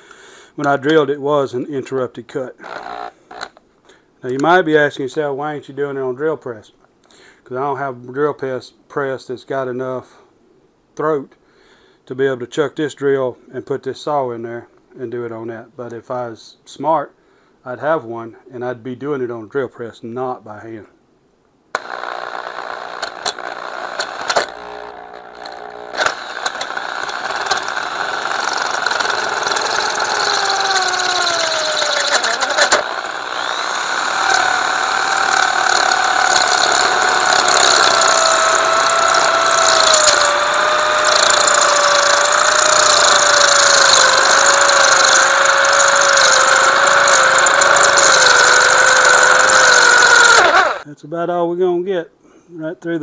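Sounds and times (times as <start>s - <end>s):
electric drill whining: 2.6s - 3.6s, 21.8s - 50.9s.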